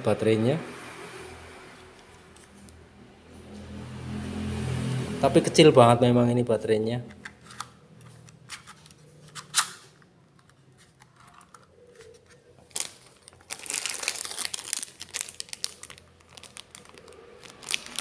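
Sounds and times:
plastic bag crinkling: 11.1s - 18.0s.

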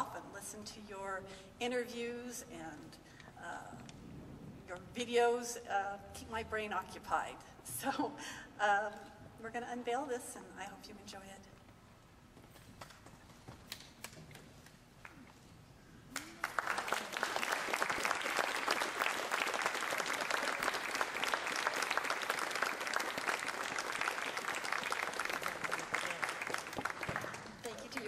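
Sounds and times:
audience applause: 16.2s - 28.0s.

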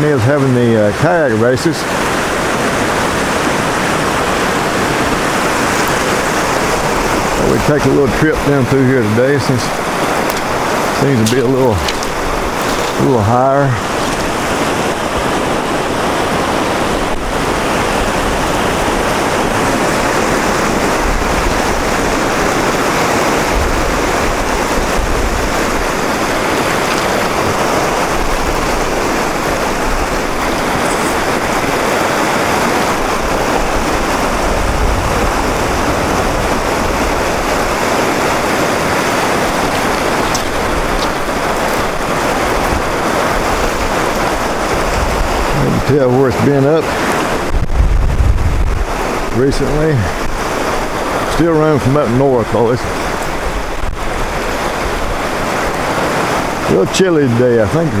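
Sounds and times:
river rapids rushing: 0.0s - 58.0s.

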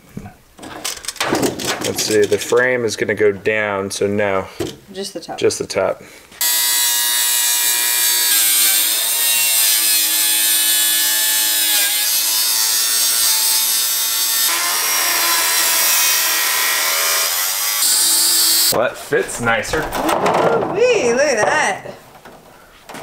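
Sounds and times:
angle grinder grinding metal: 6.4s - 18.8s.

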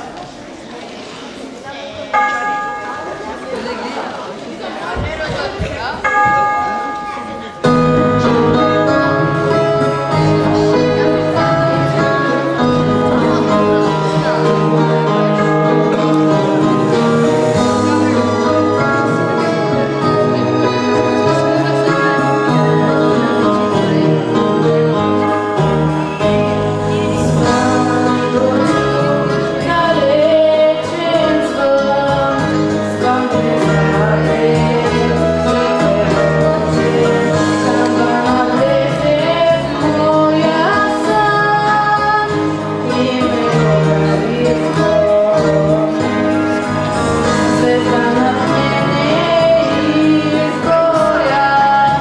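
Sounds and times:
instrumental accompaniment: 5.3s - 52.0s
girl singing into microphone: 26.0s - 52.0s.

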